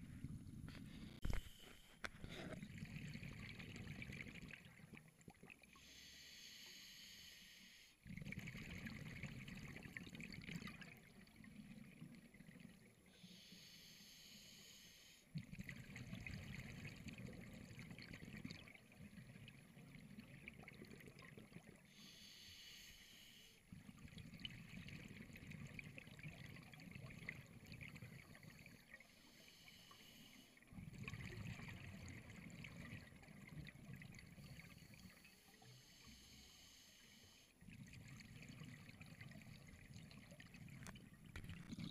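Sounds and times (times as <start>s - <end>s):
hissing regulator inhalations: 28.4s - 30.6s
bubbling underwater exhalations: 41.4s - 41.9s.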